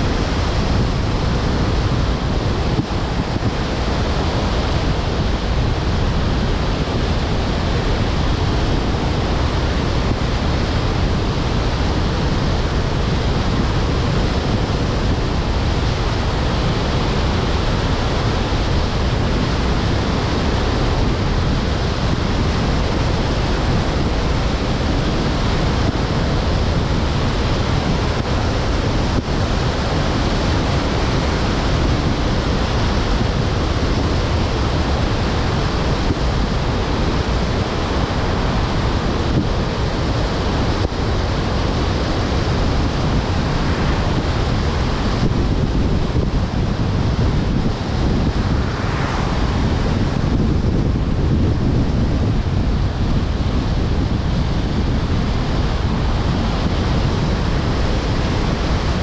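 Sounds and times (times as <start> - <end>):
wind rushing hiss: 0.0 - 55.1
road noise low rumble: 0.0 - 59.0.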